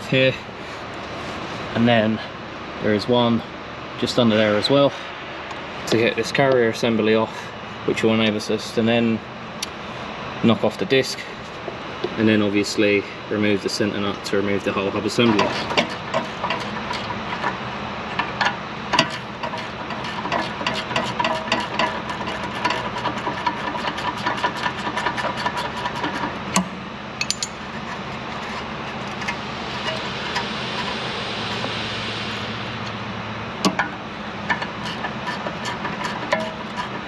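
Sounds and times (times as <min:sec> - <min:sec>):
hand tools clicking and knocking: 0:15.2 - 0:28.0, 0:33.6 - 0:37.0
steady hiss: 0:27.0 - 0:37.0.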